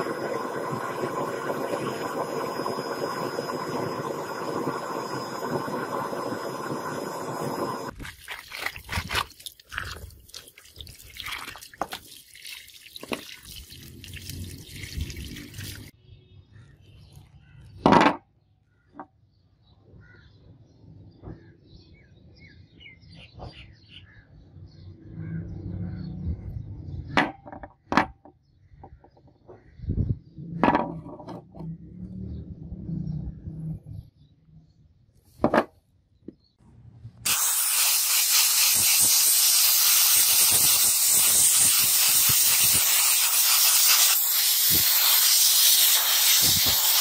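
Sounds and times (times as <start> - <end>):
water splashing: 7.9 - 15.9
metal knocking on wooden table: 17.9 - 18.2, 30.6 - 31.4, 35.4 - 35.7.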